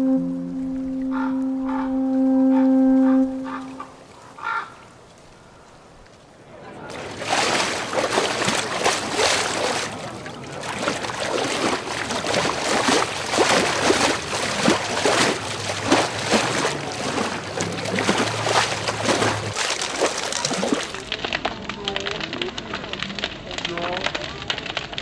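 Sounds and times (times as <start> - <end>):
water splashing: 0.0 - 21.4
people wading through water: 0.0 - 25.0.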